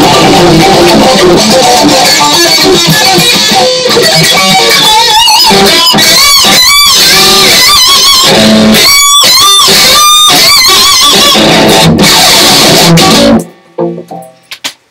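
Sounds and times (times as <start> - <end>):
electric guitar lead with bends: 0.0 - 14.6.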